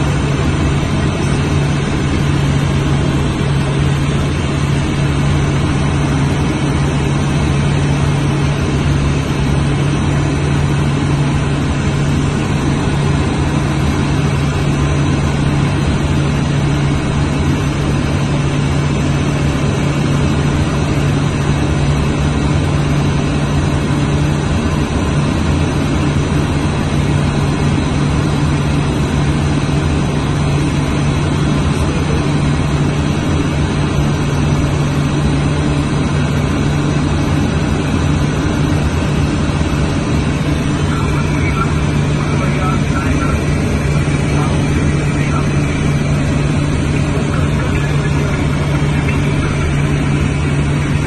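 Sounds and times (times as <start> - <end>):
jet engine and airflow rush: 0.0 - 51.0
low cockpit hum: 0.0 - 51.0.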